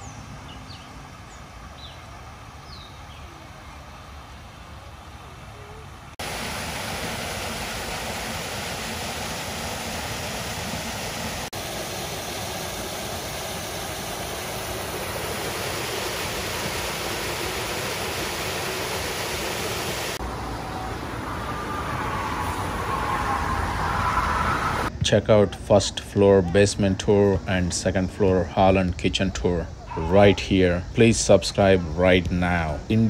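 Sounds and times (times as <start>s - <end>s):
creek flowing: 0.0s - 24.9s
stormwater rushing through outlet: 3.4s - 25.0s.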